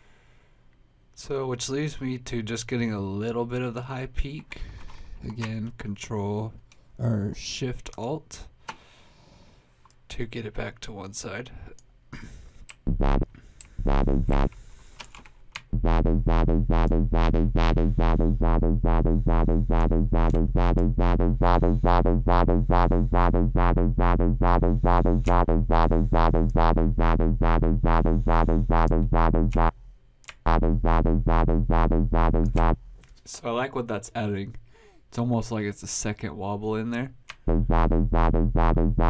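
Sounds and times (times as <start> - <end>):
synth wobble bass: 12.9 - 14.6, 15.7 - 29.8, 30.4 - 32.8, 37.4 - 39.0.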